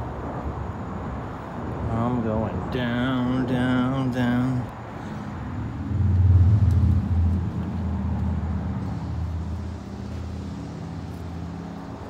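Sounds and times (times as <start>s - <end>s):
low rumble: 5.5s - 10.4s.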